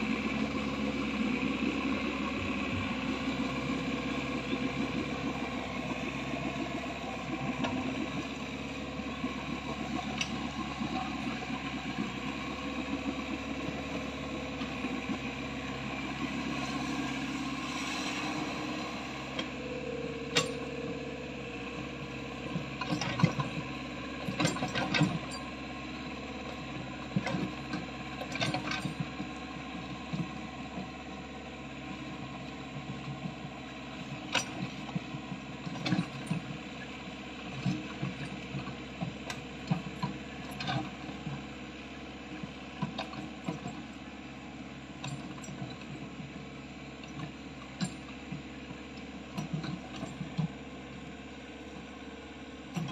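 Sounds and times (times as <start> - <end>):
excavator diesel engine running: 0.0 - 52.9.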